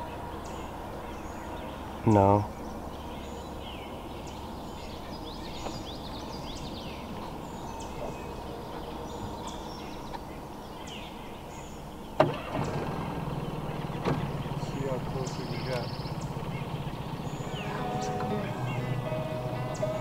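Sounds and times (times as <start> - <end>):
low background rumble: 0.0 - 20.0
low hum: 0.0 - 20.0
small birds chirping: 0.0 - 20.0.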